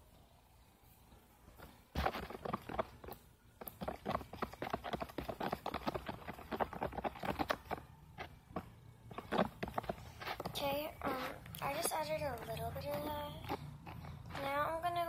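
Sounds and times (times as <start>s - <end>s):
pencil tapping container sides: 2.0s - 10.6s.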